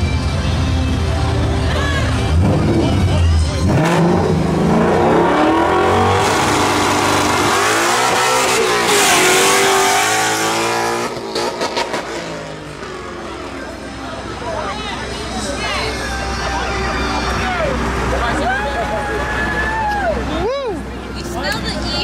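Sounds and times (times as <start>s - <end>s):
car engine revving hard: 3.6s - 13.1s.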